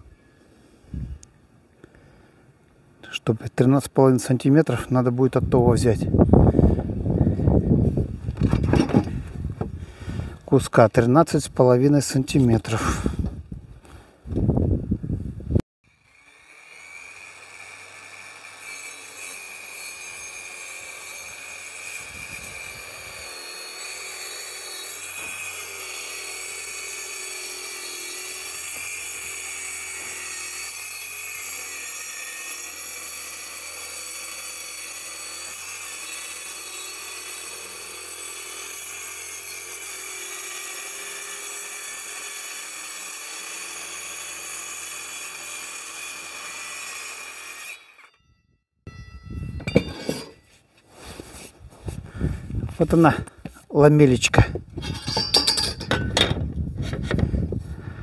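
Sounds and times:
power saw cutting wood: 0:15.9 - 0:48.2, 0:49.7 - 0:50.4.

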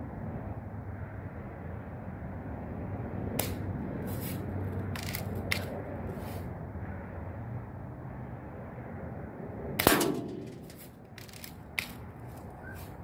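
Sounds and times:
steady low rumble: 0:09.3 - 0:13.0
bb gun shots hitting steel: 0:09.8 - 0:10.9.

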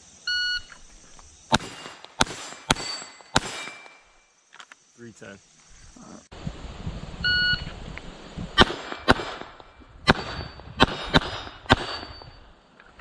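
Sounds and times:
gunshots: 0:01.5 - 0:04.0, 0:08.6 - 0:12.3
steel targets ringing: 0:01.6 - 0:04.2, 0:10.1 - 0:12.6.

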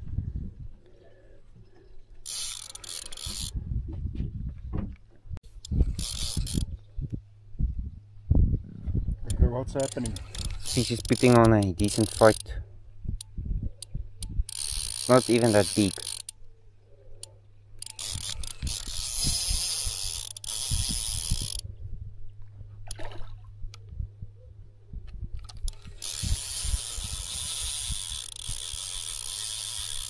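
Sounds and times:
fishing reel ratcheting: 0:02.2 - 0:03.5, 0:05.5 - 0:06.7, 0:09.3 - 0:12.6, 0:13.2 - 0:16.4, 0:17.2 - 0:21.6, 0:25.4 - 0:30.0.

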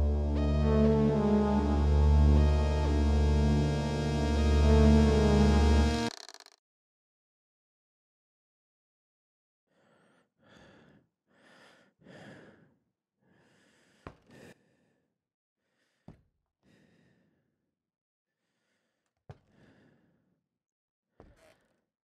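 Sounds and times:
sharp clicks: 0:05.9 - 0:06.6
person breathing: 0:09.7 - 0:15.0, 0:18.4 - 0:20.2.

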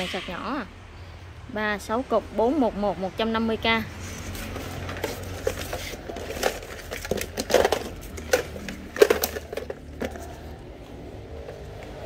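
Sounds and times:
plastic chargers clacking: 0:04.4 - 0:10.6.

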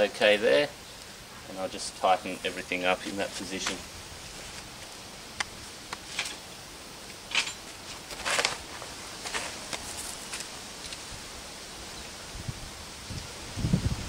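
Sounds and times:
short rustles: 0:07.2 - 0:11.0.

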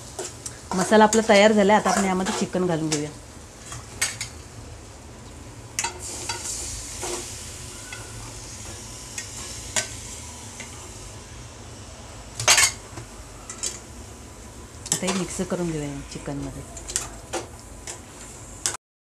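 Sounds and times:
food sizzling in a pan: 0:00.0 - 0:18.8
steel spatula scraping a pan: 0:00.7 - 0:02.6.

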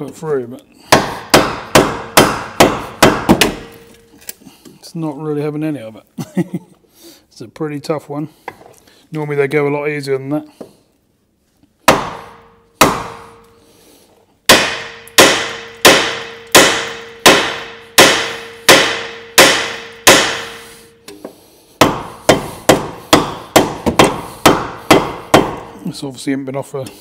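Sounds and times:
hammer blows on wood and metal: 0:14.5 - 0:25.8.

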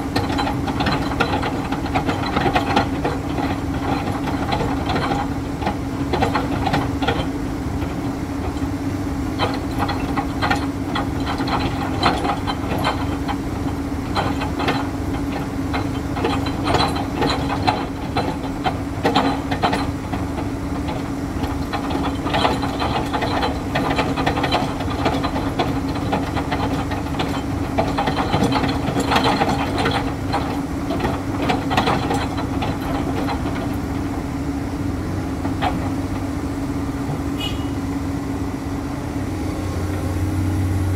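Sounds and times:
metallic clanks and rattles: 0:00.0 - 0:34.4, 0:35.3 - 0:36.4
excavator diesel engine humming: 0:00.0 - 0:40.9.

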